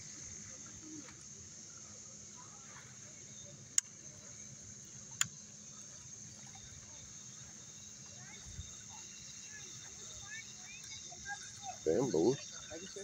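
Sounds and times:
high-pitched insect chorus: 0.0 - 13.0
sharp clicks: 5.2 - 5.4.

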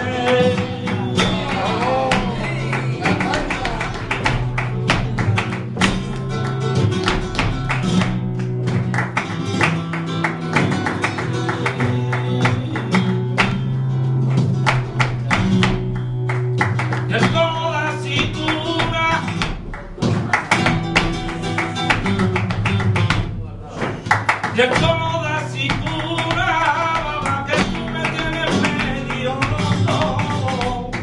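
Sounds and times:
man singing: 0.0 - 4.4, 17.0 - 19.4, 24.4 - 31.0
flamenco guitar strumming: 0.0 - 31.0
rhythmic hand clapping: 0.0 - 31.0.

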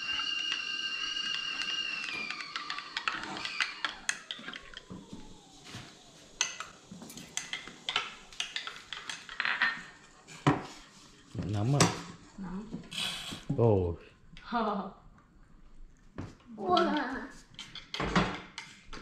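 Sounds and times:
dishes and utensils clinking: 6.4 - 10.8.

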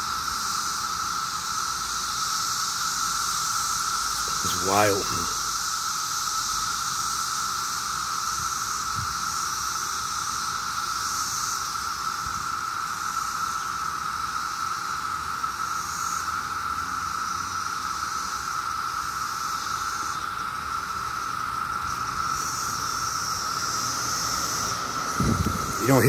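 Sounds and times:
cicadas droning: 0.0 - 26.0
faint high hiss: 4.0 - 5.7, 21.8 - 26.0.

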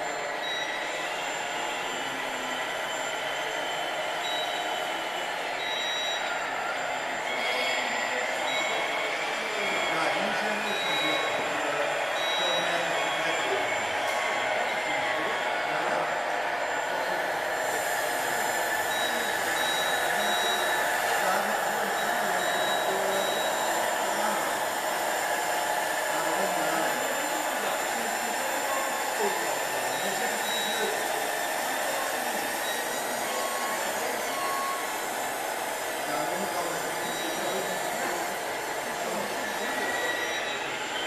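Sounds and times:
faint short high beeps: 3.7 - 4.9, 5.6 - 6.3, 10.6 - 11.4, 18.9 - 21.2, 21.9 - 23.7.

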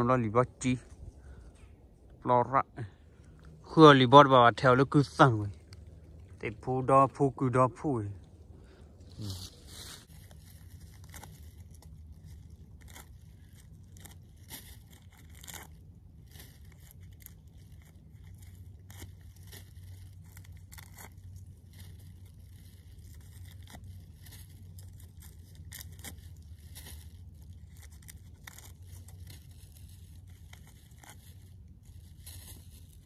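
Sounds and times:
low steady hum: 0.0 - 33.0
plastic bag rustling: 8.3 - 15.4.

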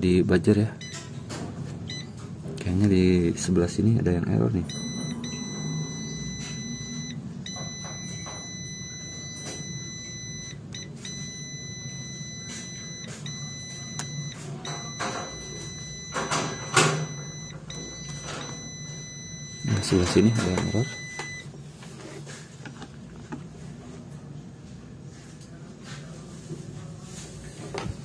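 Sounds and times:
low steady hum: 0.0 - 24.8
steady electronic beep: 1.9 - 2.1, 4.6 - 21.5.

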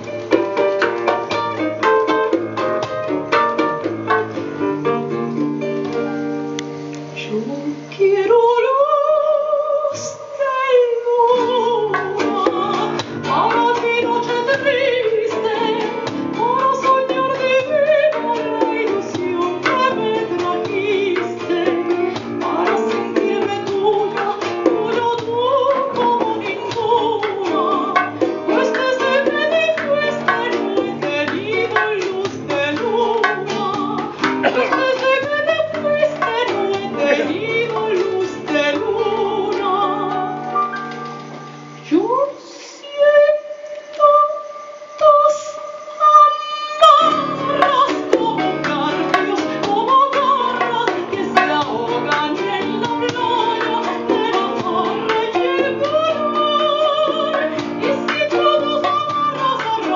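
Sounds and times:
hand drum taps: 0.0 - 6.7, 11.9 - 38.8
plucked acoustic guitar: 0.0 - 6.9, 11.3 - 41.8, 46.9 - 59.9
piano: 0.0 - 59.9
woman singing with vibrato: 7.2 - 40.7, 41.5 - 59.9.

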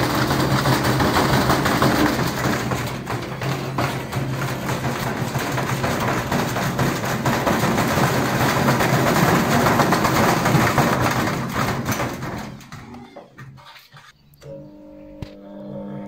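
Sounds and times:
brick banging in drum: 0.0 - 13.4
washing machine motor humming: 0.0 - 13.4, 14.4 - 16.0
cabinet rattling: 0.0 - 13.6.

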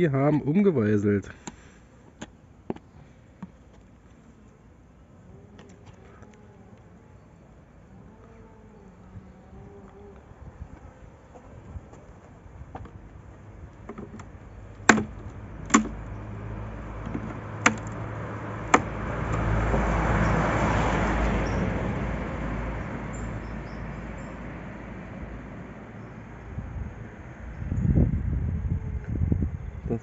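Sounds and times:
wooden knocks on beehive box: 13.8 - 16.0, 17.0 - 18.0.

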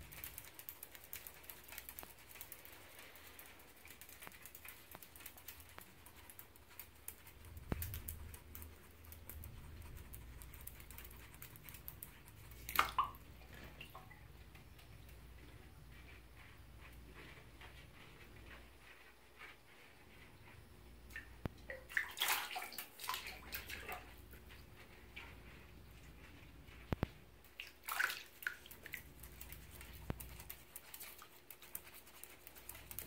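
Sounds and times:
small water splashes: 12.6 - 13.2, 21.1 - 24.0, 27.6 - 28.7.

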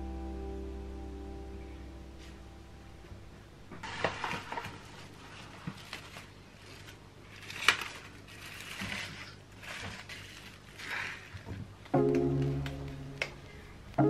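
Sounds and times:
cling wrap crinkling: 3.8 - 12.6.

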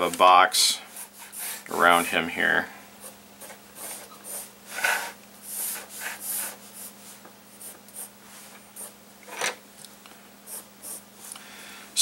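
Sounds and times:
pencil scratching on paper: 0.7 - 2.1, 3.0 - 8.1, 8.8 - 9.0, 10.5 - 11.1.

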